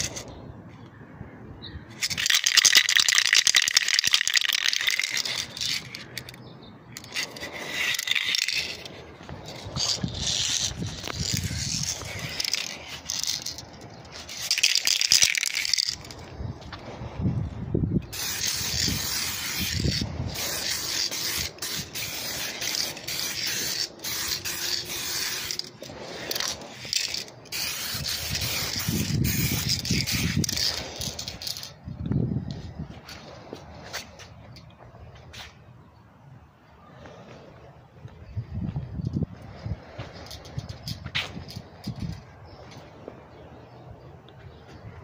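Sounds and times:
aerosol spray can hissing: 18.1s - 31.7s.

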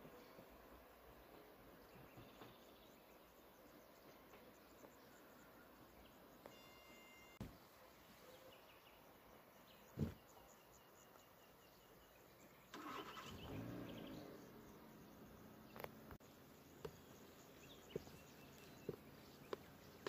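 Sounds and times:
low engine-like noise: 12.7s - 16.2s.

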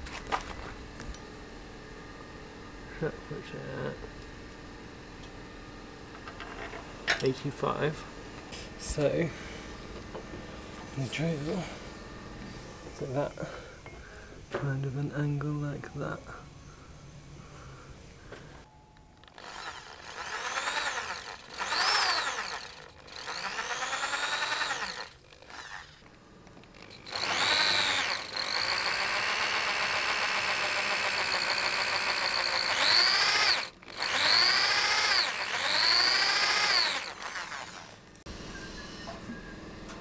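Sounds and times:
electric drill whining: 19.2s - 39.1s.

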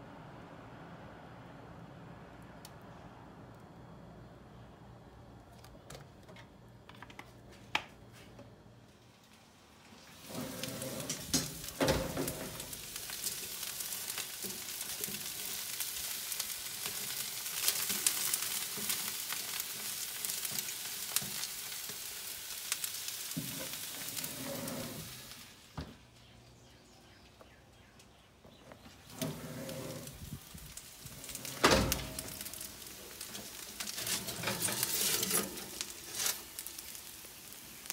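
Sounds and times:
vegetables sizzling in oil: 10.0s - 25.8s, 29.0s - 37.9s
oven door shutting click: 31.3s - 32.5s.

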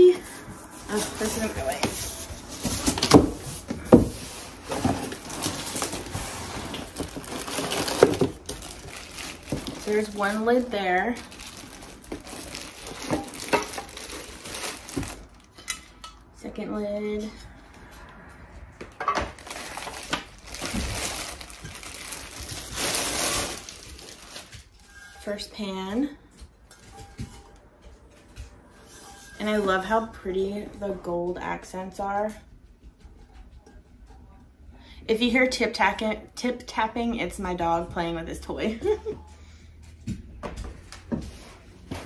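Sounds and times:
cardboard crinkling and rustling: 0.0s - 15.6s, 19.2s - 25.3s.

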